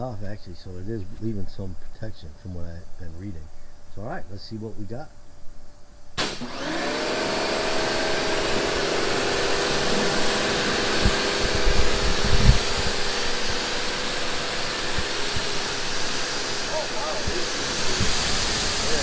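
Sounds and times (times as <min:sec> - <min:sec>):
pressure washer motor hum: 0:06.2 - 0:19.0
water jet hissing: 0:06.2 - 0:19.0.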